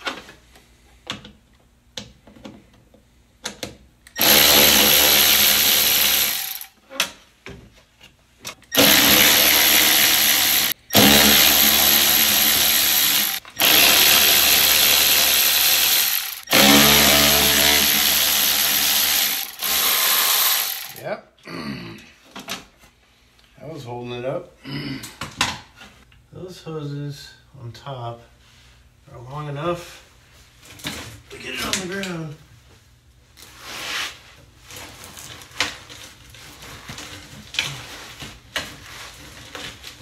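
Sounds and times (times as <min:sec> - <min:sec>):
electric ratchet running: 0:04.2 - 0:06.7, 0:08.7 - 0:21.0.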